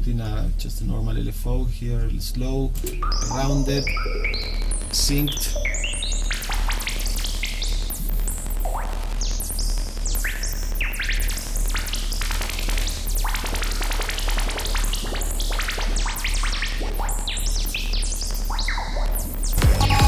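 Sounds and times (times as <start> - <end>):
steady deep low tone: 0.0 - 10.3.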